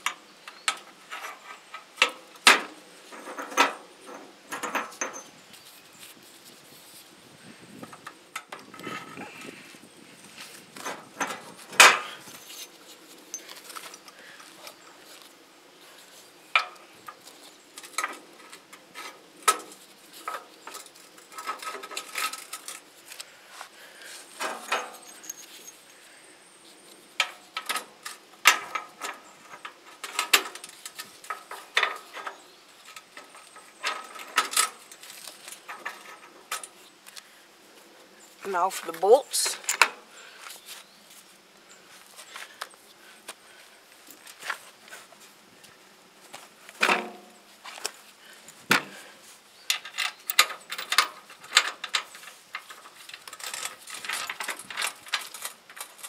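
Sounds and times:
metal washers clinking: 24.4 - 25.8, 49.7 - 56.0.

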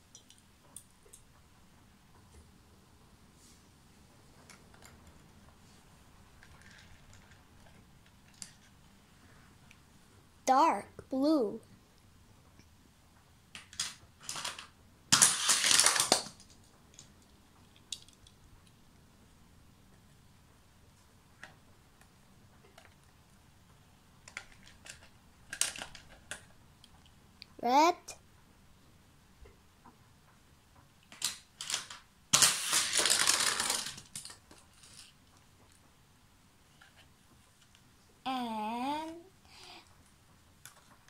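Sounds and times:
toy cars clattering: 6.4 - 8.7, 13.6 - 18.4, 24.3 - 26.5, 31.0 - 35.2
toy car clicks: 31.1 - 35.1.

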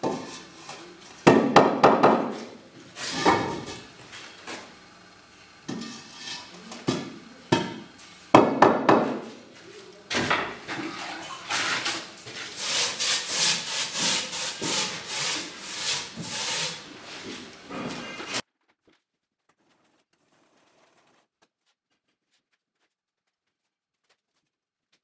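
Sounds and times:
trowel scraping on mortar: 11.5 - 16.9.

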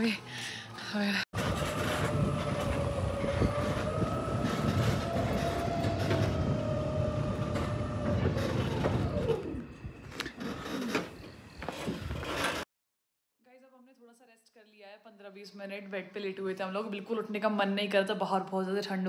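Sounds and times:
electric cart motor whine: 1.4 - 12.5.

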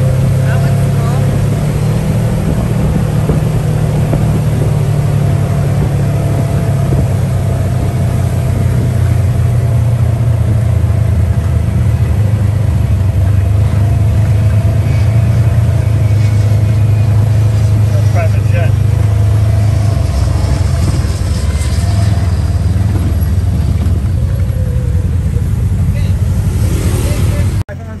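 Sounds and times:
buggy engine running: 0.0 - 28.0
tyres on wet road: 0.0 - 28.0
wind rushing: 1.2 - 11.8, 18.8 - 27.6.

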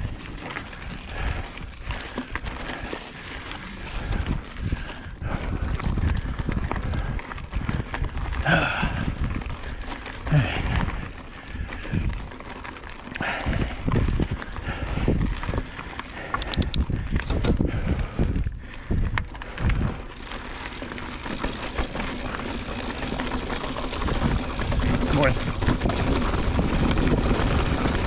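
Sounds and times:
bike rattling: 0.0 - 28.0
bike tyres crunching over rocks: 0.0 - 28.0
sharp clicks: 16.3 - 17.6.

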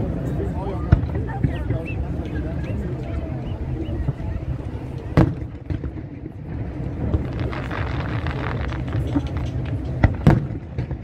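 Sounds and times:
fireworks exploding: 5.1 - 11.0
sharp firework booms: 5.2 - 11.0.

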